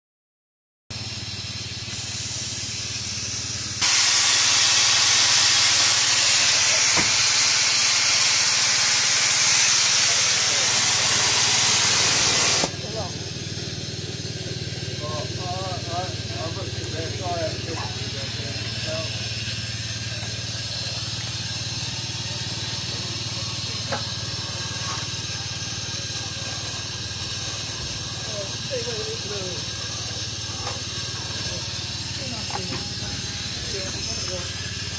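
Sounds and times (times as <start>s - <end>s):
locomotive hissing steam: 0.9s - 34.9s
safety valves blowing off: 1.0s - 34.9s.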